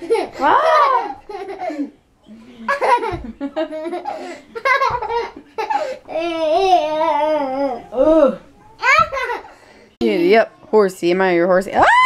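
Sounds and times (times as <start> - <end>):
toddler laughing and giggling: 0.0 - 1.9, 2.7 - 7.8, 8.8 - 9.5.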